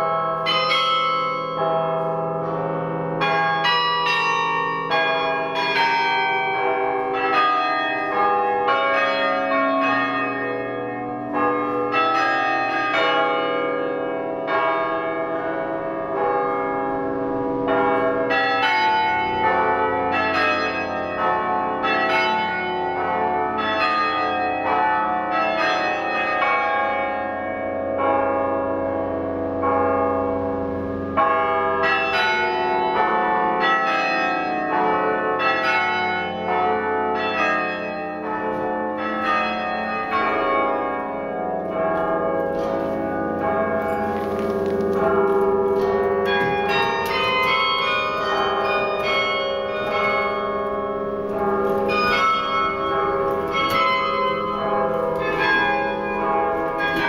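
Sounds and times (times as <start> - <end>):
carillon bells playing tune: 42.5 - 57.0.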